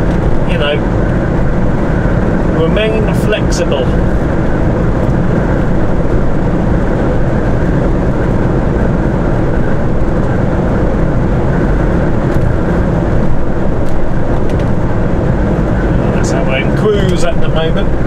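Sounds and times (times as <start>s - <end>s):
truck engine and road noise: 0.0s - 18.0s.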